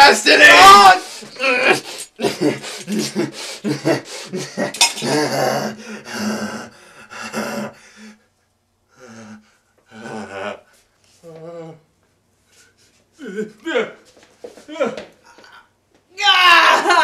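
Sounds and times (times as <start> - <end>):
man crying out: 0.0 - 6.7, 13.2 - 14.0, 16.2 - 17.0.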